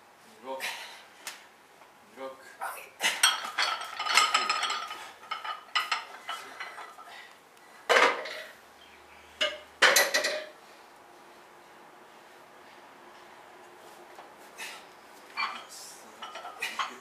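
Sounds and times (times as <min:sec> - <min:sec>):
weight plates clanking: 0:03.2 - 0:07.1, 0:09.4 - 0:10.6, 0:15.4 - 0:17.0.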